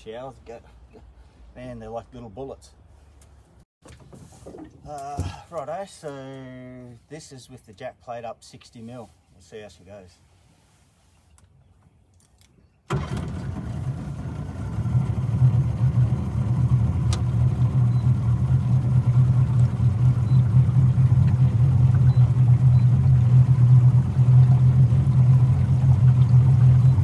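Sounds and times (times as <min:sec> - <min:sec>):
outboard motor running: 0:12.9 - 0:27.0.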